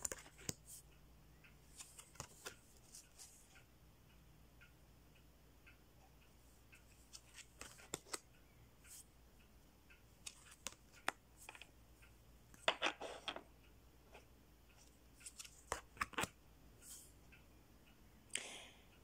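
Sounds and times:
cards rustling: 0:07.1 - 0:08.2, 0:10.2 - 0:11.6, 0:15.2 - 0:16.3
cards clicking and tapping on table: 0:15.3 - 0:16.3.

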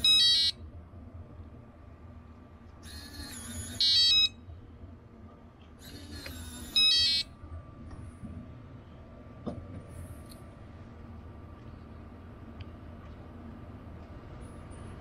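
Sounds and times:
high beeps: 0:00.0 - 0:00.6, 0:03.4 - 0:04.4, 0:06.7 - 0:07.3
door lock mechanism whirring: 0:02.9 - 0:04.3, 0:05.9 - 0:07.2.

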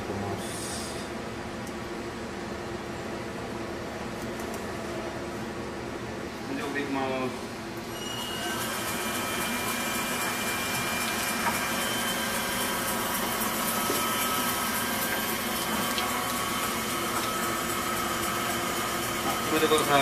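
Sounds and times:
machine motor hum with whine: 0:00.0 - 0:20.0.

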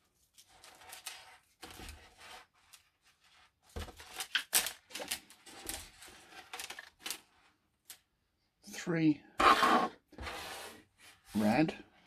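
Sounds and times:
rustling handling noise: 0:00.0 - 0:08.1.

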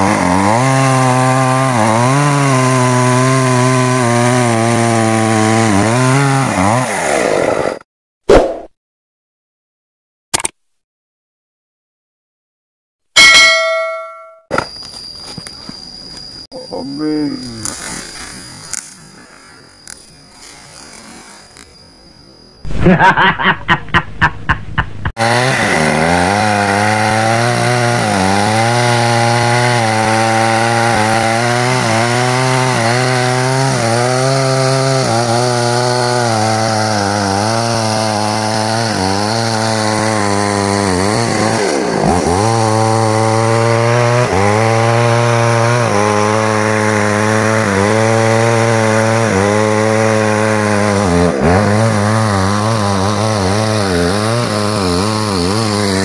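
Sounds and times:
chainsaw cutting into tree trunk: 0:00.0 - 0:07.8, 0:25.2 - 0:56.0.

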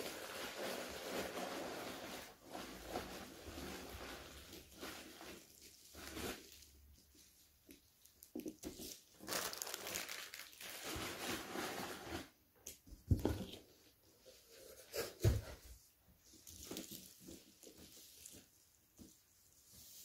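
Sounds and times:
plastic packaging crinkling: 0:07.8 - 0:12.3.

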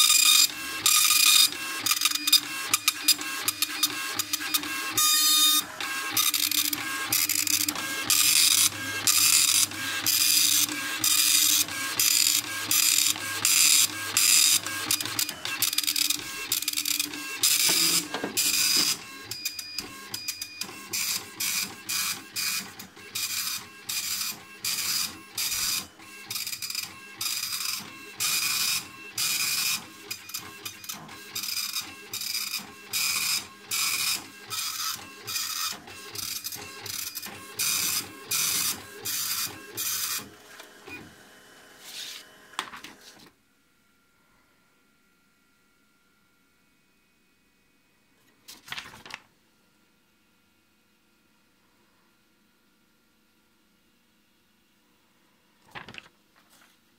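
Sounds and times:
dot-matrix printer rasping: 0:00.0 - 0:41.1
printer rising whine: 0:00.0 - 0:42.8.

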